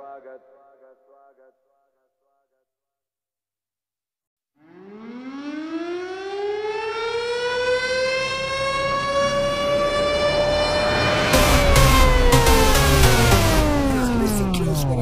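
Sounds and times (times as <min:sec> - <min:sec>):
air-raid siren wailing: 0:04.6 - 0:15.0.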